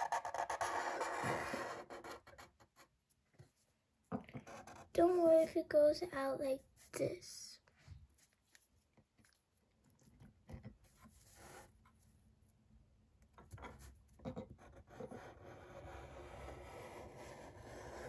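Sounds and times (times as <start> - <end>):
marker scratching on paper: 0.0 - 2.9, 4.4 - 5.2, 14.4 - 18.0.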